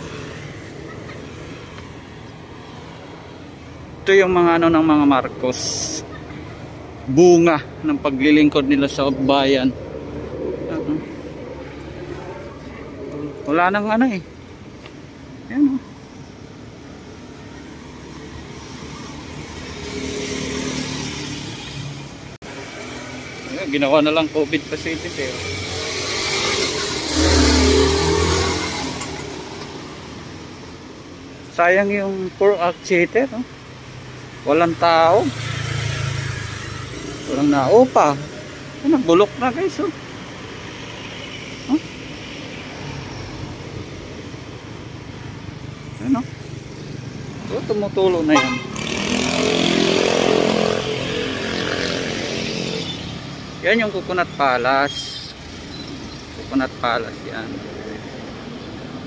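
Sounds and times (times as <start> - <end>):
cars driving past: 0.0 - 59.0
road traffic rumble: 0.0 - 59.0.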